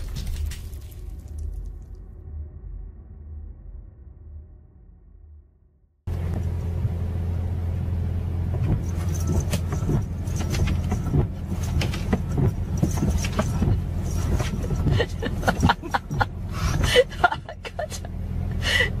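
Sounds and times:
car engine hum: 6.1s - 19.0s
windshield wipers sweeping: 8.4s - 18.1s.

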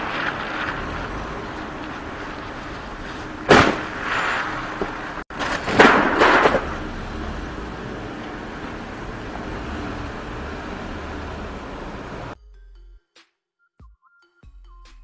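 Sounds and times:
street traffic noise: 0.0s - 12.4s
car crashing into post: 3.1s - 6.9s.

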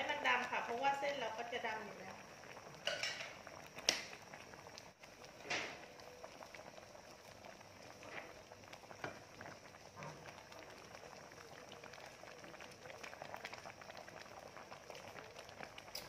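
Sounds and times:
gravy bubbling: 0.0s - 16.0s
spoon clinking against pan: 2.8s - 3.3s.

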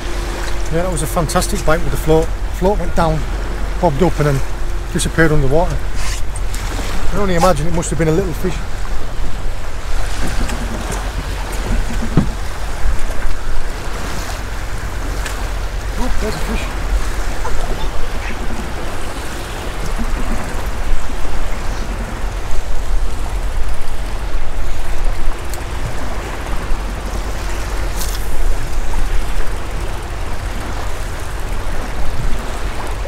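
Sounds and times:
choppy sea water washing: 0.0s - 33.0s
wind buffeting microphone: 0.0s - 33.0s.

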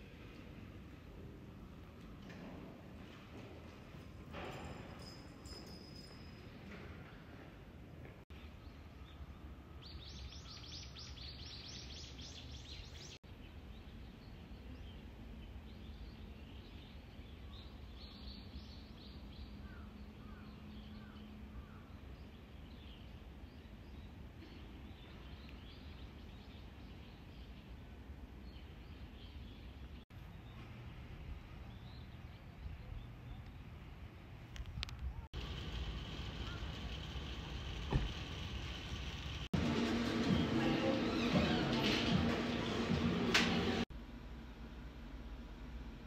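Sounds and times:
low outdoor rumble: 29.9s - 46.0s.

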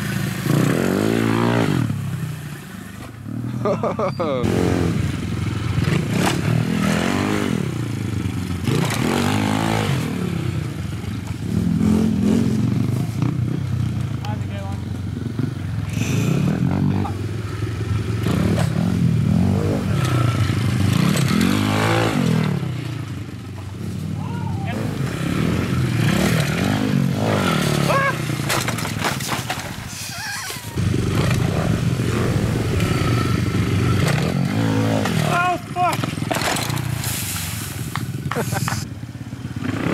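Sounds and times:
pit bike engine revving: 0.0s - 39.9s
bike clattering into dirt: 28.3s - 29.8s, 35.9s - 37.1s.

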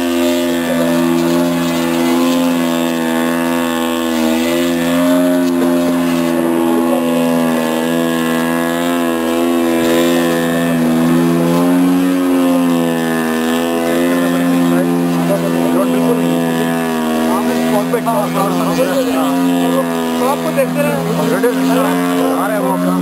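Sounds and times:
model plane engine and propeller: 0.0s - 23.0s.

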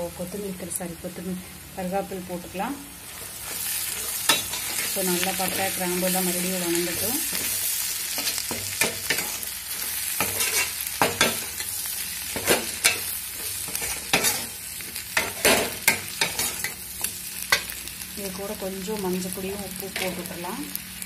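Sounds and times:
onions frying in oil: 0.0s - 21.0s
metal ladle scraping pan: 7.3s - 11.7s.

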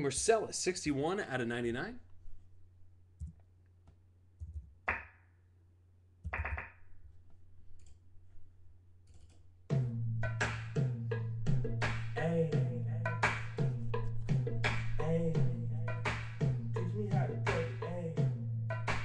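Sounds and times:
music track with bass and beat: 6.3s - 6.8s, 9.7s - 19.0s.

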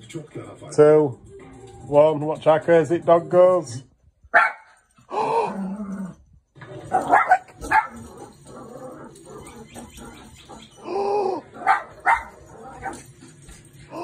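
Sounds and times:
small dog barking: 4.3s - 4.8s, 6.9s - 8.1s, 11.6s - 13.0s.

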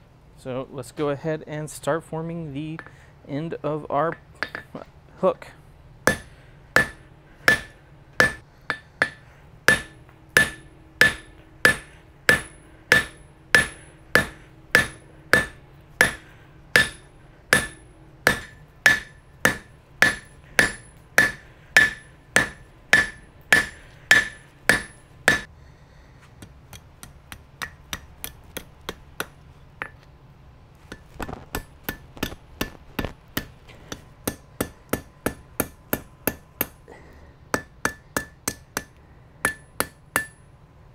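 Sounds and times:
hammer striking steel on anvil: 4.1s - 4.8s, 6.0s - 25.5s, 26.4s - 30.1s, 30.9s - 36.8s, 37.5s - 40.5s
anvil ringing: 6.0s - 25.5s, 37.5s - 40.5s.

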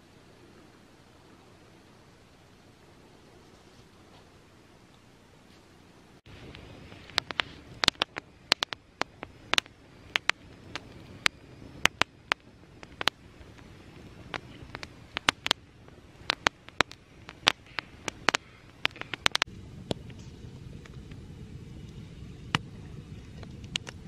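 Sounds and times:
campfire crackling: 0.0s - 24.0s
sharp pops of burning wood: 6.4s - 21.2s.

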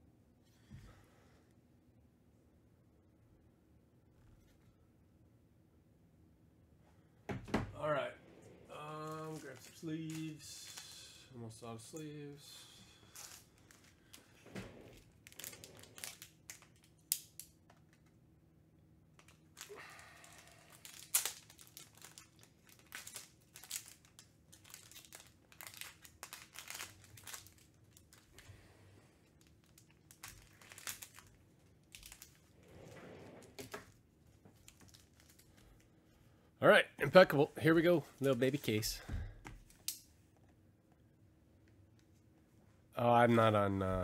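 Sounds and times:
faint steady hum: 0.0s - 44.0s
plastic sleeves crinkling: 8.7s - 11.3s, 12.6s - 18.2s, 19.1s - 36.0s.

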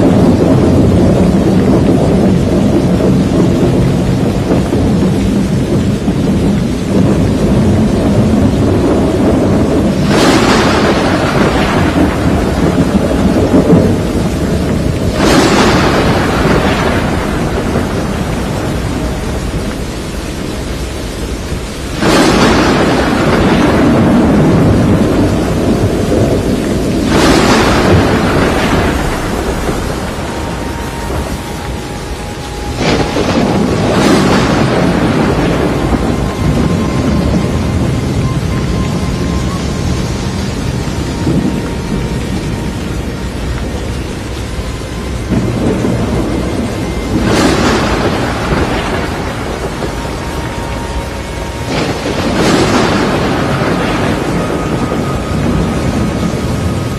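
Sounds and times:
rain and storm noise: 0.0s - 56.9s
thunderclaps: 0.0s - 56.9s.

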